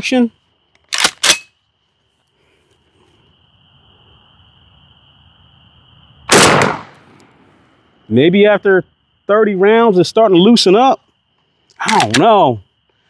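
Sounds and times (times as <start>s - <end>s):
shotgun shot: 6.3s - 7.0s.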